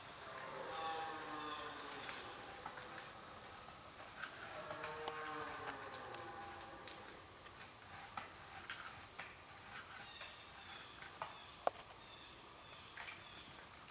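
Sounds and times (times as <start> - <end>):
faint snaps and ticks: 0.3 - 10.3.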